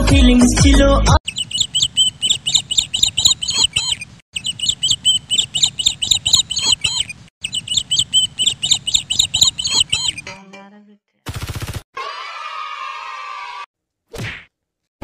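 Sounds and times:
bird-like chirps over low beat: 1.2s - 10.3s.

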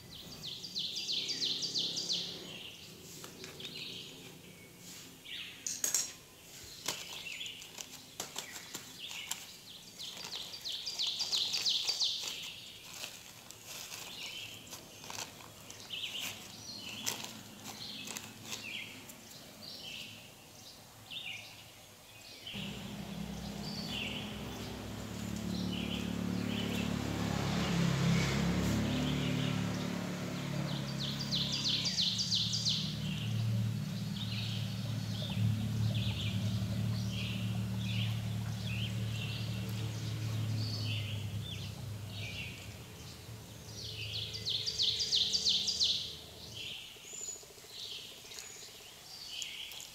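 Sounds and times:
small birds chirping: 0.0s - 49.9s
low mechanical hum: 22.6s - 46.6s.

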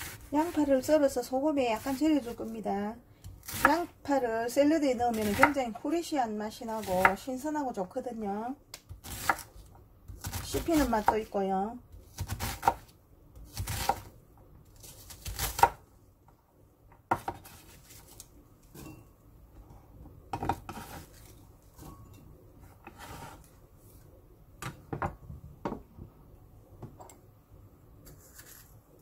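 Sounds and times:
knife scraping wooden board: 20.6s - 21.3s, 22.6s - 23.5s.

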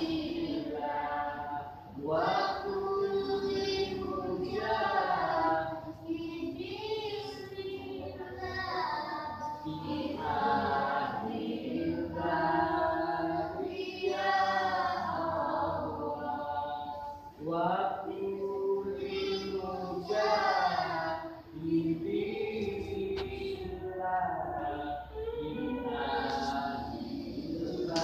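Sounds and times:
group of voices singing: 0.0s - 28.0s.

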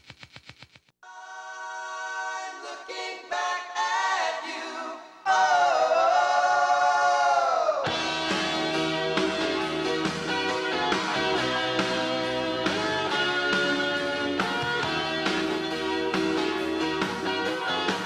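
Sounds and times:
quick even ticking: 0.0s - 0.9s
choir singing a cappella: 1.0s - 8.0s.

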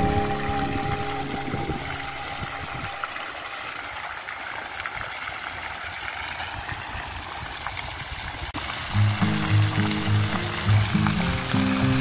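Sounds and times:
background music: 0.0s - 3.0s, 8.9s - 12.0s
fountain water splashing: 0.0s - 12.0s.

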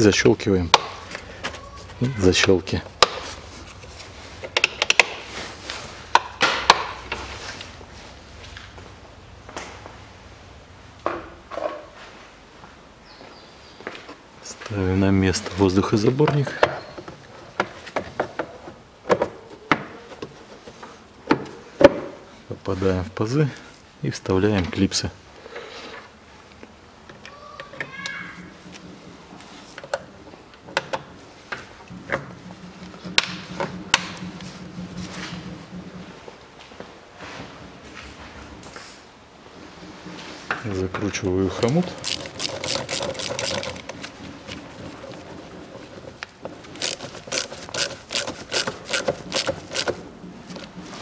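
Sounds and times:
nut driver clicking: 46.8s - 50.0s.

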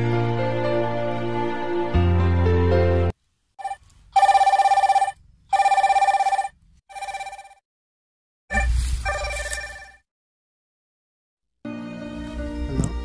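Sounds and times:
mobile phone ringing: 3.6s - 7.6s, 8.5s - 10.0s.

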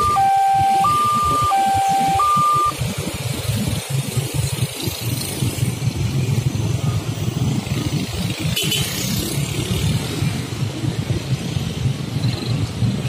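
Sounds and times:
motorcycles and scooters passing: 3.1s - 13.0s.

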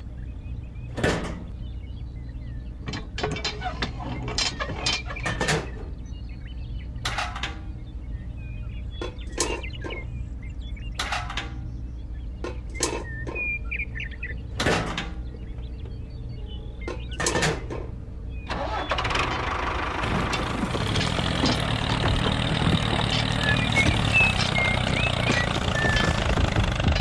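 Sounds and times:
mechanism clicks and clattering: 2.8s - 6.0s
small motor humming: 19.2s - 27.0s.

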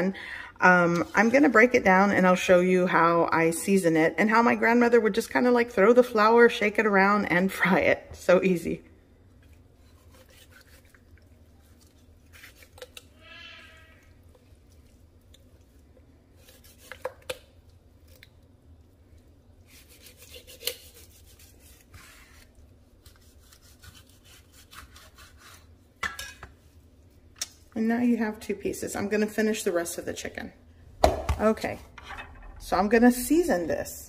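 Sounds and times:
knife slicing raw chicken: 9.8s - 10.9s, 16.4s - 17.4s, 19.7s - 25.7s.

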